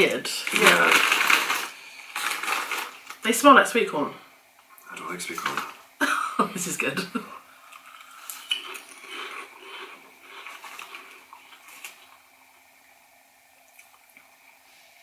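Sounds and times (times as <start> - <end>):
people chewing crunchy crisps: 0.4 - 3.2, 7.6 - 12.5.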